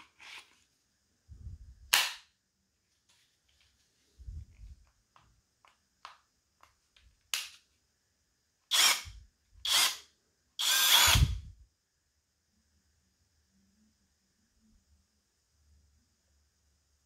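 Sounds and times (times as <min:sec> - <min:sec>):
cordless drill running: 0:08.7 - 0:10.0, 0:10.6 - 0:11.4.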